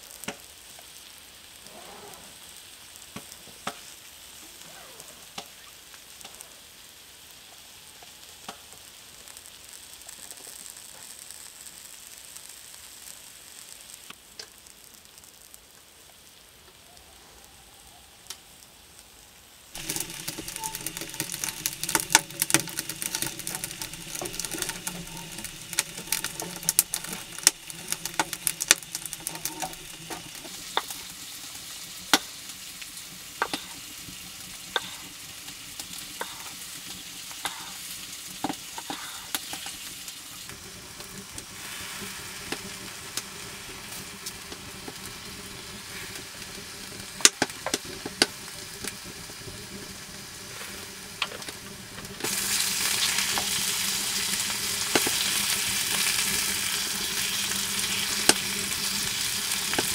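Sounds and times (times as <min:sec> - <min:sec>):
crackling and sizzling on wood stove: 0:00.0 - 0:59.9
faint steady hush: 0:14.9 - 0:47.3.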